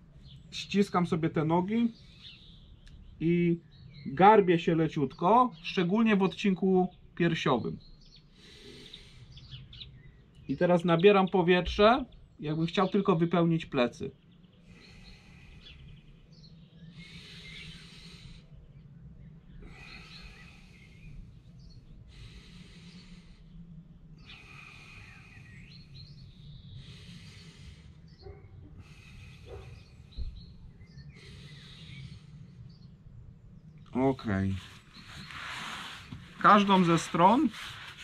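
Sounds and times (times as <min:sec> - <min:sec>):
man breathing deeply: 0:08.2 - 0:10.2, 0:14.4 - 0:33.5.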